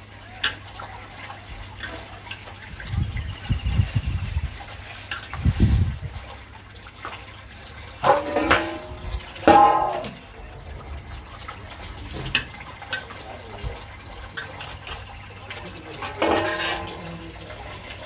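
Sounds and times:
tap water running into basin: 0.0 - 18.0
metal plate ringing scrapes: 8.0 - 10.2, 16.0 - 17.3
scrubbing metal plate: 8.0 - 10.2, 16.0 - 18.0
utensils clinking: 8.0 - 10.3, 14.2 - 18.0.

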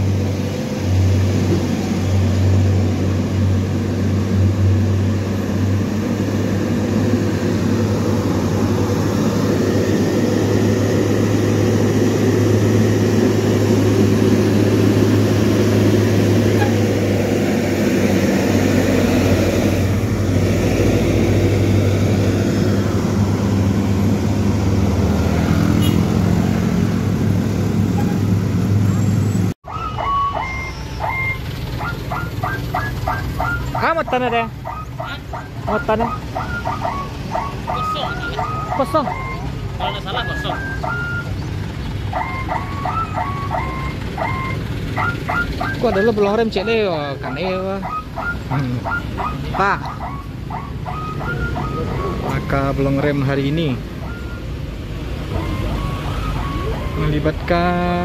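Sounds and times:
diesel truck engine droning: 0.0 - 58.0
idling traffic: 0.0 - 58.0
people talking: 33.8 - 36.2, 37.7 - 39.2, 39.8 - 40.6, 45.6 - 49.9, 51.4 - 53.8, 56.6 - 58.0.

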